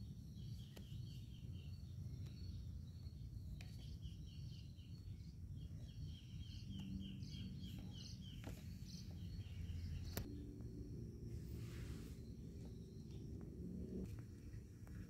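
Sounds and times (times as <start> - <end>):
low rumble: 9.1 - 15.0.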